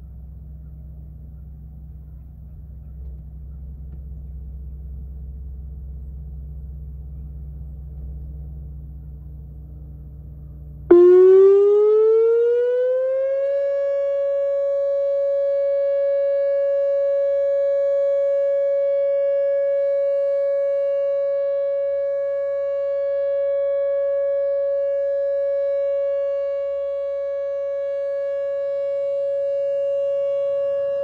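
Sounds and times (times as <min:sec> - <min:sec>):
electronic warning siren: 0:10.9 - 0:31.0.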